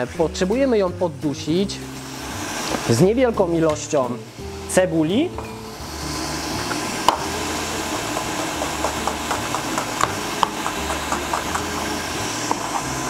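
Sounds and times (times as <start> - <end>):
meat sizzling in oil: 1.7 - 3.0, 5.6 - 13.0.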